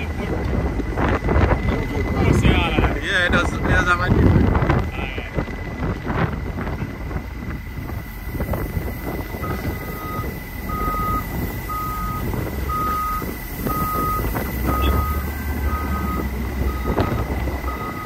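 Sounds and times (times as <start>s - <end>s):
truck engine rumble: 0.0s - 18.0s
reversing alarm beeping: 8.8s - 18.0s.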